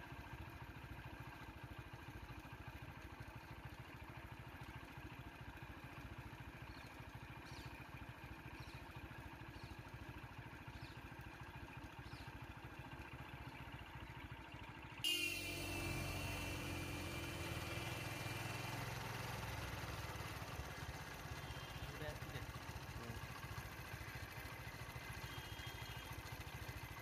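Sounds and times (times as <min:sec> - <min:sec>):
vehicle engine idling: 0:00.0 - 0:27.0
faint high chirps: 0:15.1 - 0:22.4, 0:24.9 - 0:26.3.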